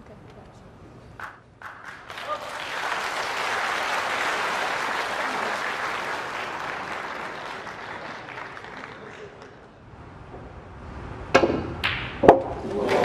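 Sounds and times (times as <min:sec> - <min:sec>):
audience applause: 0:01.6 - 0:09.8.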